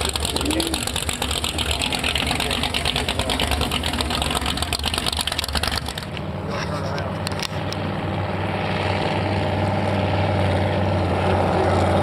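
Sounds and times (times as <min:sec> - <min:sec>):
boat engine idling: 0:00.0 - 0:08.4.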